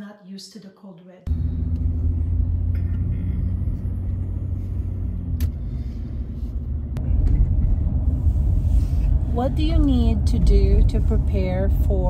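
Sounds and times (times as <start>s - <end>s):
engine and road noise rumble: 1.3s - 12.0s.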